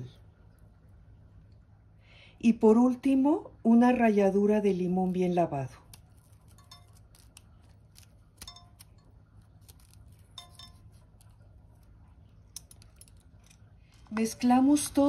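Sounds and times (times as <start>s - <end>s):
peeler scraping lime zest: 5.0s - 13.6s
clinks against glass bowl: 6.5s - 7.1s, 8.4s - 9.1s, 10.3s - 11.0s.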